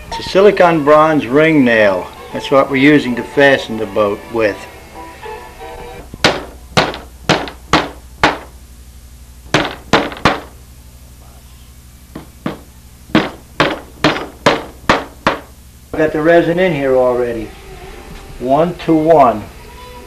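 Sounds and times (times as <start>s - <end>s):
hammer driving nails into wood: 6.2s - 8.5s, 9.5s - 10.5s, 12.2s - 15.5s.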